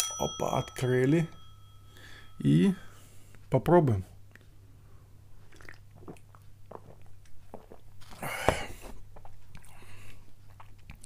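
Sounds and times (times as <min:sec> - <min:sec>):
steady low hum: 0:00.0 - 0:11.0
breathy exhale: 0:01.9 - 0:03.3
man gulping drink: 0:05.4 - 0:09.8.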